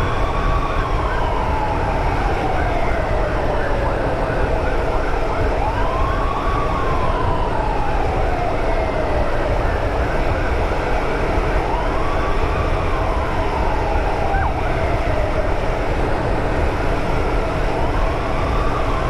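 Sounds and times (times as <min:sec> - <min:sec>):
emergency siren wailing: 0:00.0 - 0:19.0
motorcycle road noise: 0:00.0 - 0:19.0.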